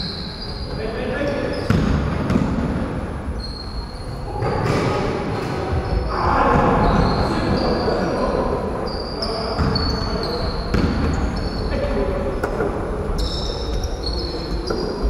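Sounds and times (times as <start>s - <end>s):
players' voices: 0.0s - 3.4s, 4.0s - 15.0s
sneakers squeaking: 0.0s - 15.0s
basketball bouncing on wooden floor: 1.7s - 2.8s, 10.7s - 11.3s.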